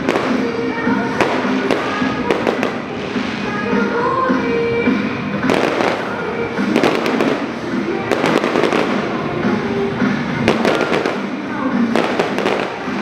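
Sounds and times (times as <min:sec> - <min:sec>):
firework bangs: 0:00.0 - 0:03.6, 0:05.4 - 0:09.2, 0:10.4 - 0:11.3, 0:11.9 - 0:13.0
firework crackling: 0:00.0 - 0:03.8, 0:05.4 - 0:13.0.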